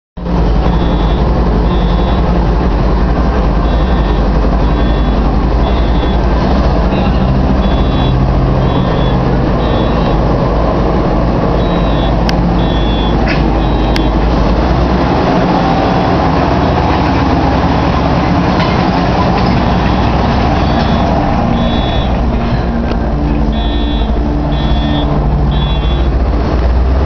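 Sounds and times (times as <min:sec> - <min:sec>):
rumble of tracks: 0:00.2 - 0:27.0
tank engine driving past: 0:00.2 - 0:27.0.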